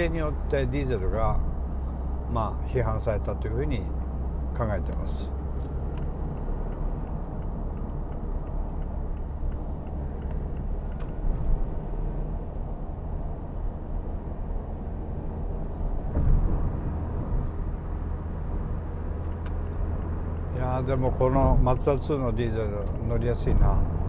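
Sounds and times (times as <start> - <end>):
car engine and tyres rumbling: 0.0 - 24.0
car bump: 16.1 - 16.9.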